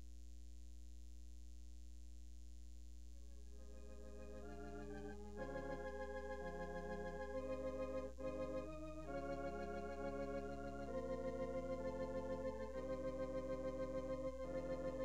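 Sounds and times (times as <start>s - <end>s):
organ playing sustained chords: 3.2s - 15.0s.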